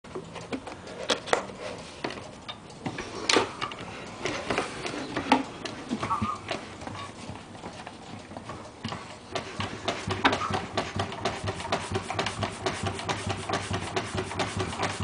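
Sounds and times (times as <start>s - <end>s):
barrel organ tone: 4.2s - 7.2s.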